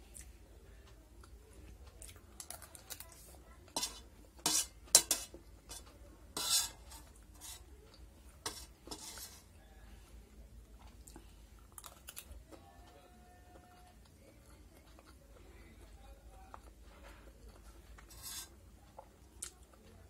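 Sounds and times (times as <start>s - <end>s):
metal spoon scraping steel plate: 3.7s - 7.7s, 8.4s - 9.5s, 18.0s - 18.6s.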